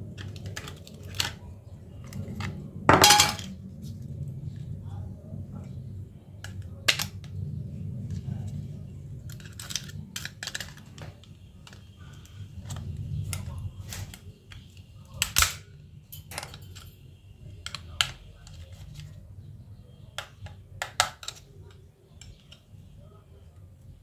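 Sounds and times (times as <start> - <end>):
low steady rumble: 1.6 - 10.8.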